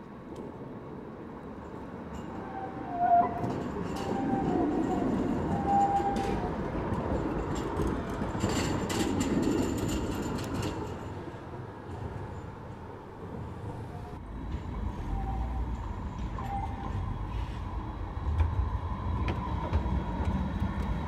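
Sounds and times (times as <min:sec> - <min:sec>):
tram rumbling past: 0:00.1 - 0:21.0
wheels clicking over track joints: 0:02.2 - 0:11.2.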